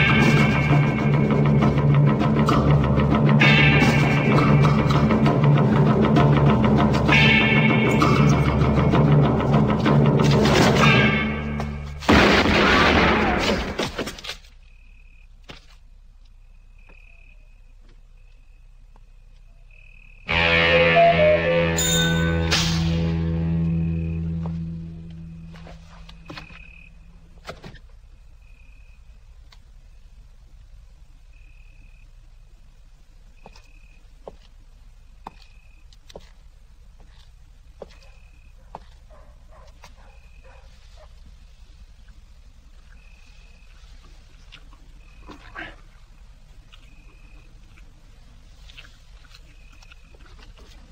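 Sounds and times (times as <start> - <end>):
loud bang: 10.3 - 13.8
cricket chirping: 13.2 - 50.9
short high chirp: 20.5 - 23.2
steady low hum: 22.8 - 50.9.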